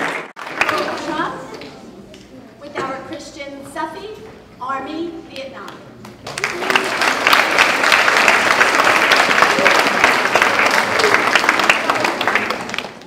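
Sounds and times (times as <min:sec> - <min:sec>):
children applauding: 0:00.0 - 0:01.6, 0:06.2 - 0:13.0.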